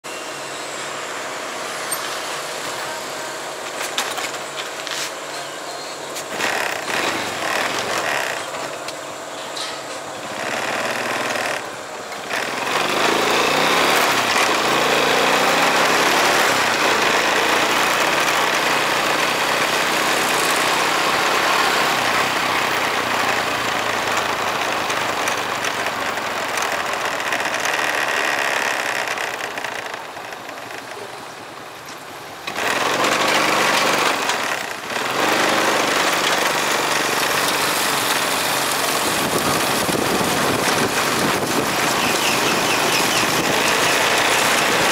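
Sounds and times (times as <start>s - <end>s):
wind and road noise: 0.1s - 44.9s
motorbike engine running: 6.3s - 8.5s, 10.3s - 31.3s, 32.5s - 44.9s.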